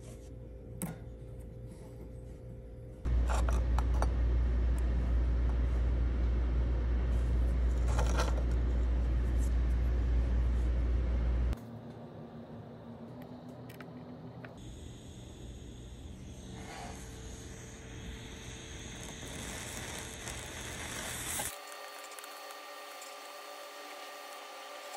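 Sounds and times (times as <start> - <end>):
loud low rumble: 3.1 - 11.6.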